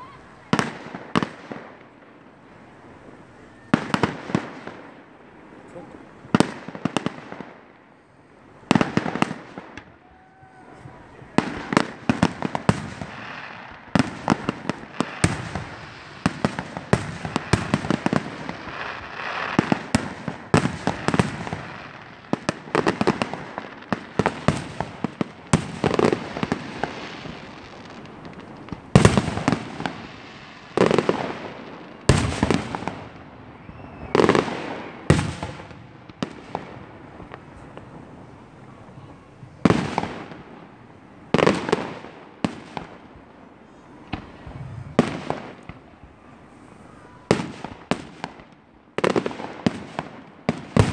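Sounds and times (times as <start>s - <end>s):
fireworks bangs and crackles: 0.0s - 50.9s
heavy firework booms: 43.8s - 48.4s.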